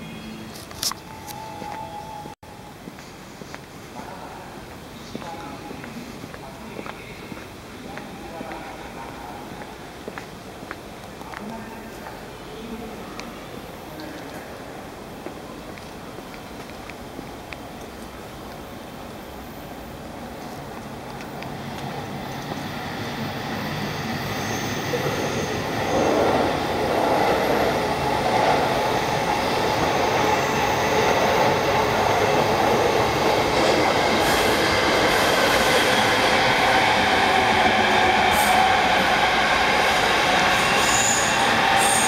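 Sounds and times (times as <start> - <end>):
electric train passing: 12.2 - 42.0.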